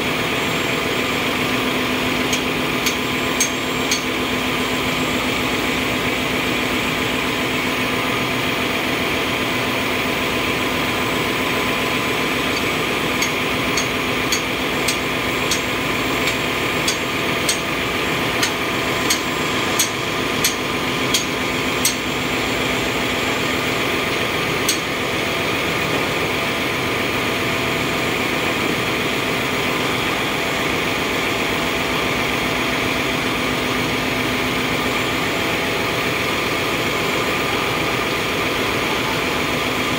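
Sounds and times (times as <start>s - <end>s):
engine-room machinery drone: 0.0s - 39.9s
hammer striking metal spanner: 2.2s - 4.2s, 12.5s - 17.8s, 18.4s - 22.1s, 24.7s - 24.9s.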